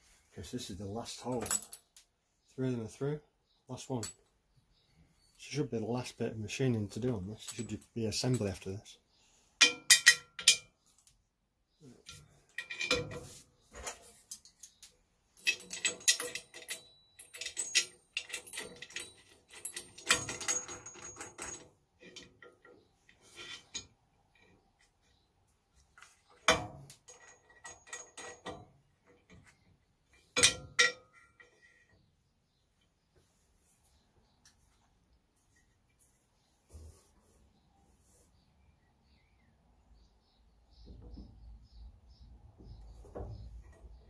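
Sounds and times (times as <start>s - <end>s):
metal and wood clinking on metal table: 1.2s - 1.9s, 9.6s - 10.8s, 12.1s - 23.9s, 30.2s - 31.9s.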